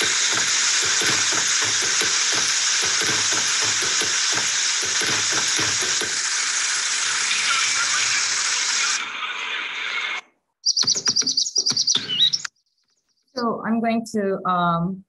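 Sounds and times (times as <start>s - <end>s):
heavy rain hiss: 0.0s - 10.2s
high bird chirps: 10.6s - 13.3s.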